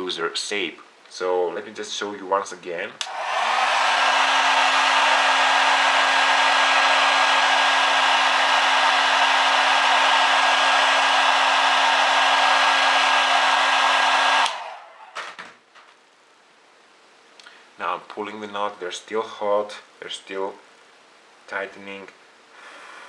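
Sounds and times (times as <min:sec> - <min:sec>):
blow dryer running: 0:03.0 - 0:15.2.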